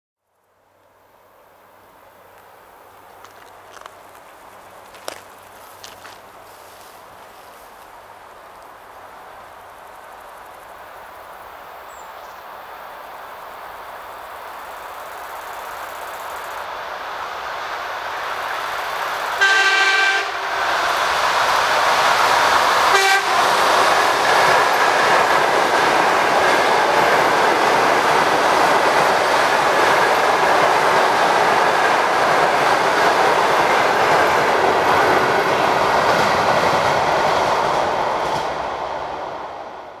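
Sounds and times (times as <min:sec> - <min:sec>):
train cars rushing past: 0:01.3 - 0:40.0
wheels clattering on rails: 0:02.4 - 0:08.8
train horn blasts: 0:19.4 - 0:20.8, 0:22.9 - 0:23.7.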